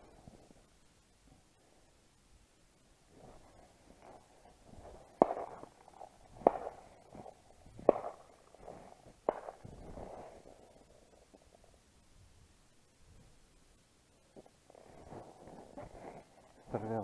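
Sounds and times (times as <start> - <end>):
distant shotgun shots: 5.1 - 10.2.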